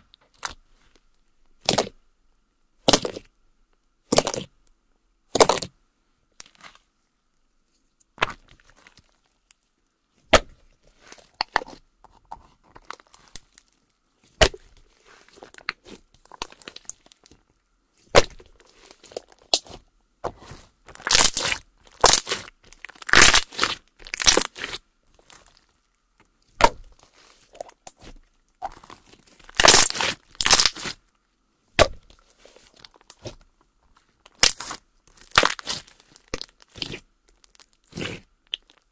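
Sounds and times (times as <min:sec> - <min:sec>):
slime crackling and popping: 0:01.6 - 0:01.9, 0:02.8 - 0:03.3, 0:14.4 - 0:17.4, 0:18.1 - 0:19.8, 0:20.9 - 0:25.7, 0:26.6 - 0:31.0, 0:34.3 - 0:38.9.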